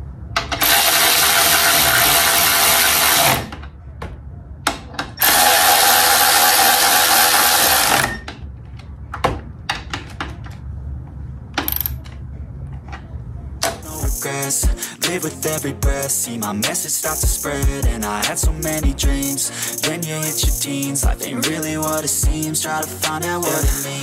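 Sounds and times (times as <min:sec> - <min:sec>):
hand-held power tool running: 0:00.6 - 0:03.5, 0:05.2 - 0:08.2
clicks and knocks of parts: 0:08.0 - 0:10.6.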